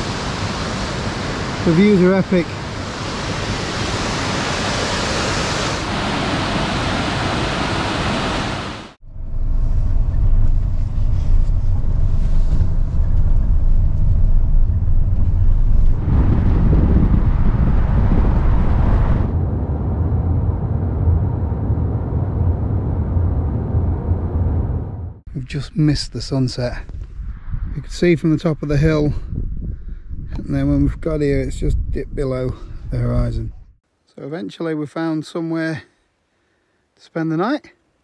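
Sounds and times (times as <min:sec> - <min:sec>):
wind rushing: 0:00.0 - 0:25.3, 0:26.2 - 0:33.8
camper van driving rumble: 0:09.0 - 0:25.4.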